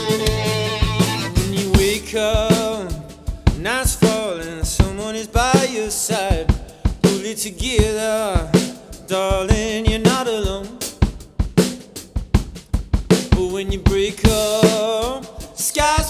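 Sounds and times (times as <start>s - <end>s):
sliding melody with vibrato: 0.0s - 3.3s
drum kit beat: 0.0s - 16.0s.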